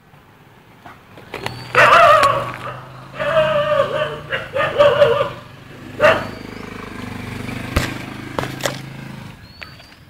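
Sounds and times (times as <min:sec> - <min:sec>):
vehicle engine humming: 0:00.0 - 0:10.0
dog whining: 0:01.4 - 0:05.4.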